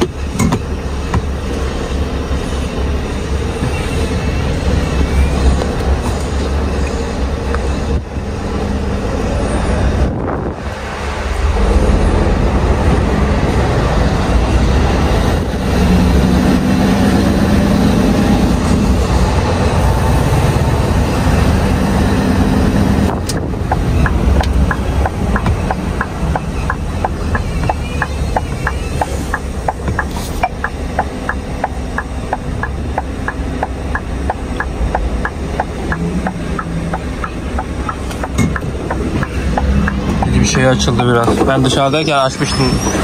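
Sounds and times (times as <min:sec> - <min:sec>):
lorry engine running: 0:00.0 - 0:43.0
steady ticking: 0:22.7 - 0:41.3.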